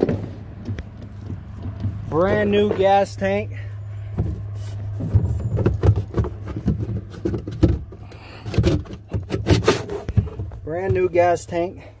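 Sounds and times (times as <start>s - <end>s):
steady low hum: 0.0s - 12.0s
hand against plastic hull: 4.1s - 11.8s.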